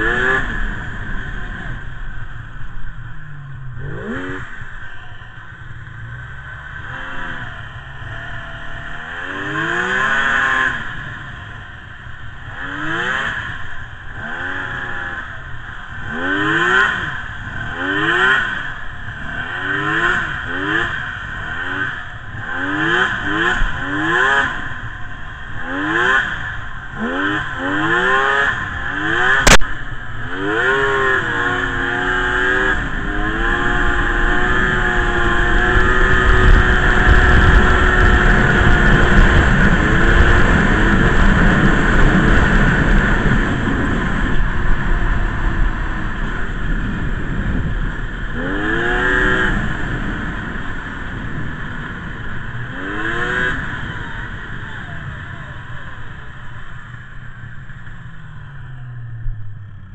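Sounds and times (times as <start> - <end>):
snowmobile engine revving: 0.0 - 56.9
low rush: 0.0 - 59.9
sharp click: 29.4 - 29.8.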